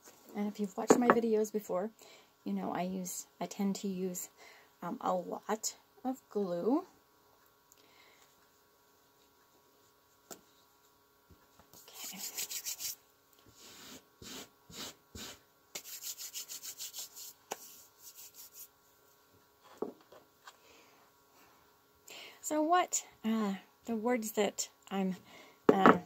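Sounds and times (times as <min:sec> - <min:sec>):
hands rubbing fabric placemat: 0:11.7 - 0:13.0, 0:15.2 - 0:18.8.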